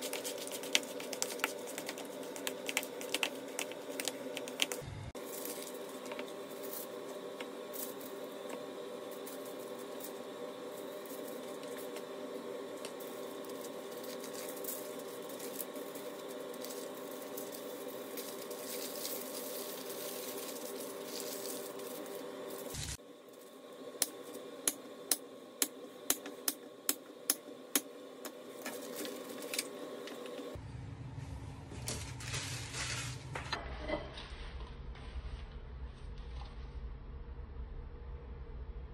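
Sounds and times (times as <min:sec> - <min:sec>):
paper and foil crinkling: 0:00.0 - 0:07.1, 0:12.8 - 0:23.0, 0:31.8 - 0:33.4
steady hum: 0:00.0 - 0:38.9.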